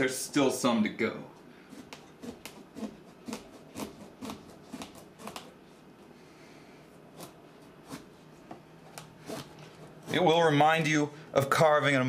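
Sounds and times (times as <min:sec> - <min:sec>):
serrated knife sawing squash rind: 0:01.6 - 0:05.6, 0:07.0 - 0:08.2, 0:09.0 - 0:10.9.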